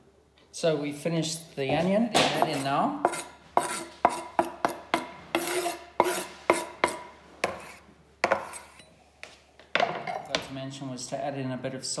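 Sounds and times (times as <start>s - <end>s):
knife scraping wooden board: 2.2s - 8.9s.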